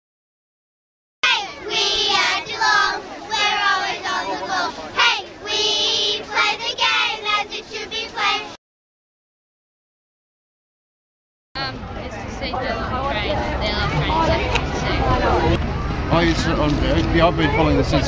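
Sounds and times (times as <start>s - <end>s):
girls singing together: 1.2s - 8.6s.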